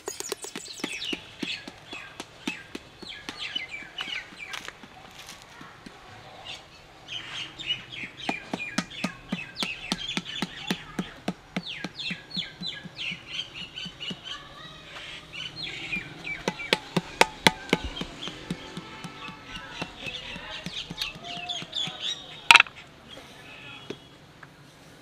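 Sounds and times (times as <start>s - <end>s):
wooden paddle beating clay pot: 0.0s - 6.0s, 8.0s - 14.4s, 15.8s - 22.7s
birds chirping: 0.0s - 24.3s.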